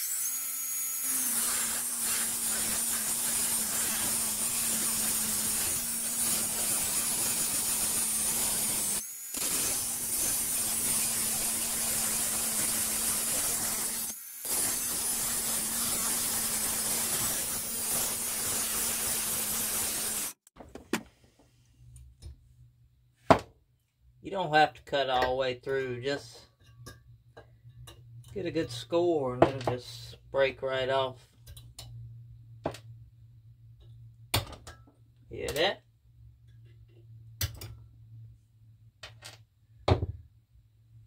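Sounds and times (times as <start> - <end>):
angle grinder cutting metal: 0.0 - 20.4.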